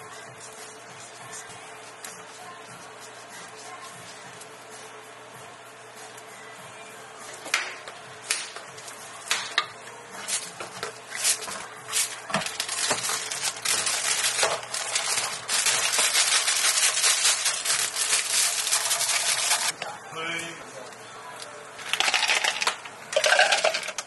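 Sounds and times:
plastic film and bag crinkling: 0:11.1 - 0:19.7.

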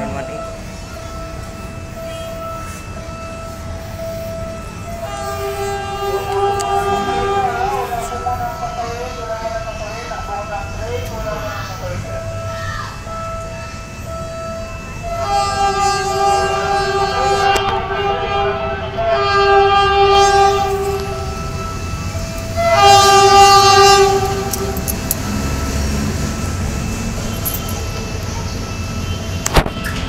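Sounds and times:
locomotive air horn chord: 0:02.0 - 0:08.2, 0:15.0 - 0:26.0.

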